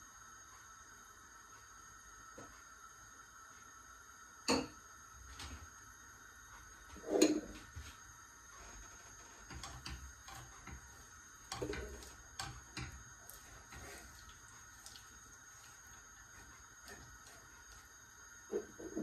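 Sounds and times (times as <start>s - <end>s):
faint steady hum: 0.0s - 19.0s
spoon knocking and scraping pan: 7.0s - 7.8s, 9.2s - 14.2s, 18.5s - 19.0s
wooden spoon stirring in saucepan: 8.6s - 19.0s.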